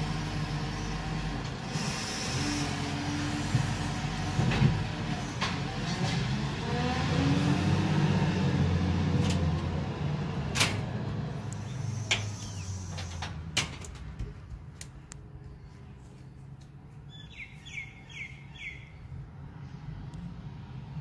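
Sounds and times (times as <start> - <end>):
garbage truck engine pulling away: 0.0 - 13.6.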